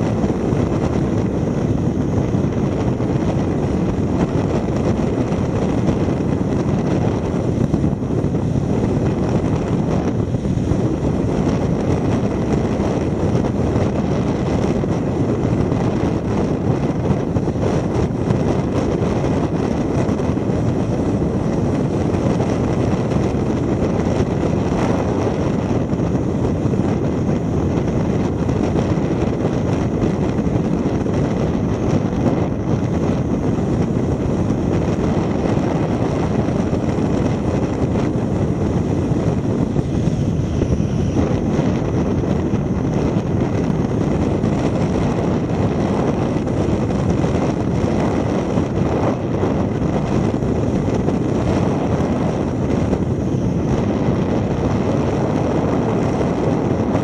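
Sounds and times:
car tyre noise on road: 0.0s - 57.0s
wind rush: 0.0s - 57.0s.

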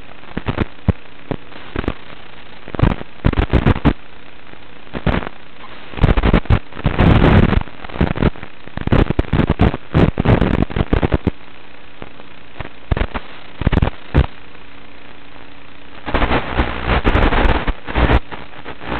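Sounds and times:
crackling static bursts: 0.0s - 18.9s
steady low hiss: 0.0s - 18.9s.

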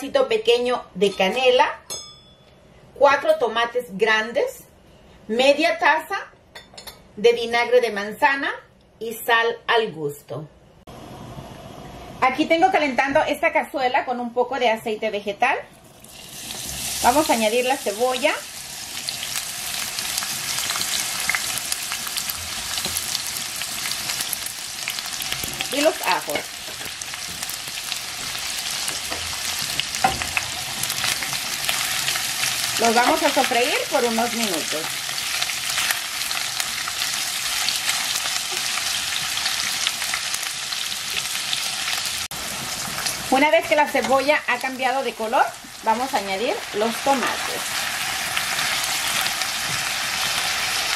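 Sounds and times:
onion sizzling in oil: 15.7s - 50.9s.

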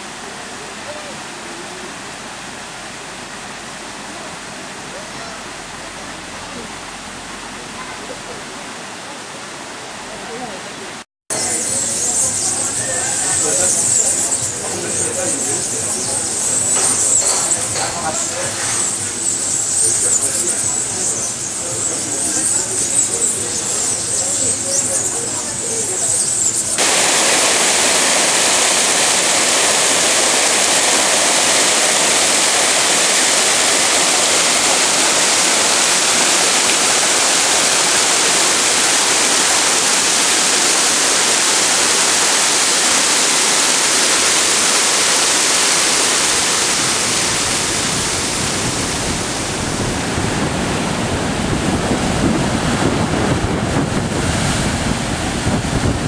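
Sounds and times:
falling water rushing: 0.0s - 56.0s
waves breaking on rocky shore: 26.8s - 56.0s
wind buffeting microphone: 46.8s - 56.0s.

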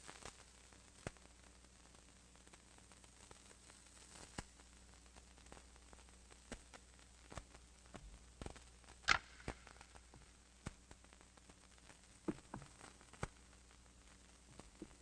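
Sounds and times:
low steady hum: 0.0s - 15.0s
faint clicks and knocks: 12.2s - 13.4s.

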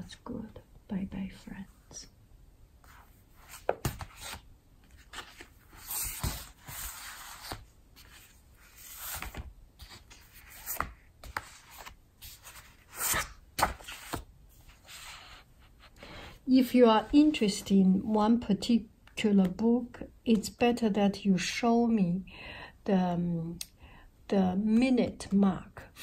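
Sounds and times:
paper pages rustling and sliding: 2.8s - 15.5s.

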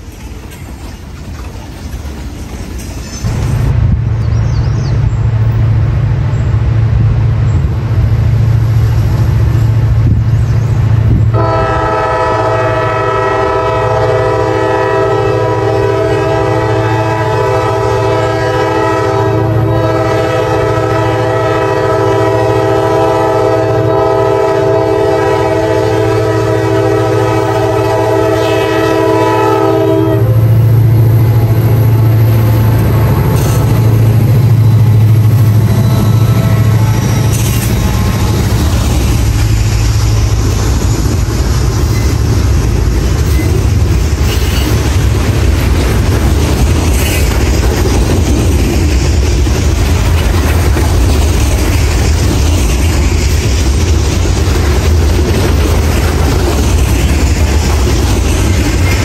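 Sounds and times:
diesel locomotive rumble: 0.0s - 59.0s
train air horn blast: 11.3s - 30.7s, 33.2s - 38.5s.

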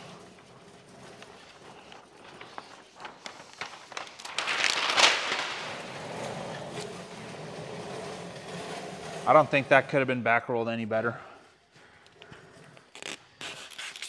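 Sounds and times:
plastic film crackling and rustling: 0.0s - 7.0s.

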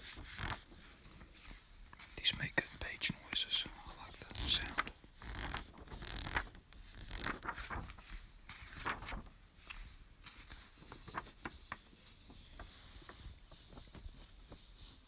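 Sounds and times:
book pages rustling and turning: 0.0s - 15.0s.

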